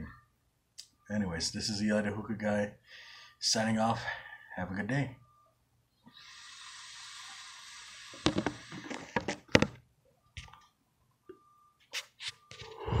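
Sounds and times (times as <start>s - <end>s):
hookah draw hiss: 6.1s - 8.9s.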